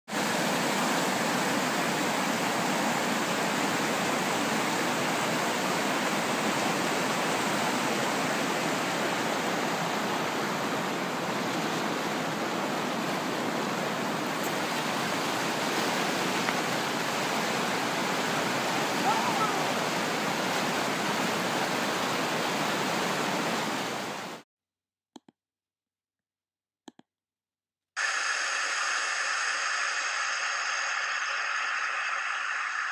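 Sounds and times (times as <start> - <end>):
whitewater rapids rushing: 0.1 - 24.4.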